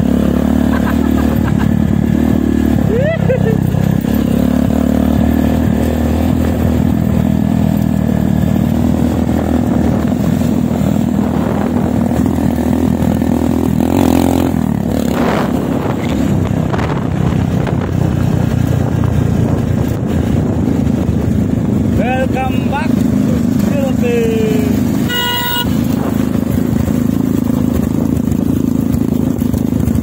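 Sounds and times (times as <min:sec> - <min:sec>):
motorcycle engines running: 0:00.0 - 0:30.0
motorcycle passing by: 0:00.0 - 0:30.0.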